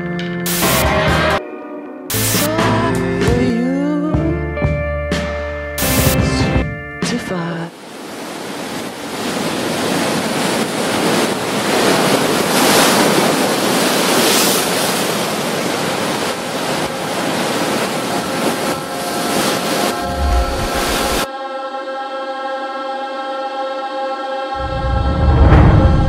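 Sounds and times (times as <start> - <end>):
ocean surf washing up beach: 7.7 - 21.3
faint sustained musical tones: 18.0 - 24.6
low thud: 24.6 - 26.0.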